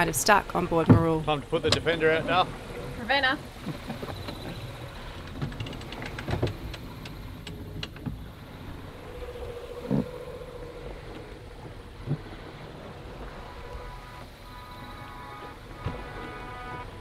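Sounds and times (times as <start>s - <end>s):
wind and water rushing: 0.0s - 17.0s
steady hum: 8.2s - 16.7s.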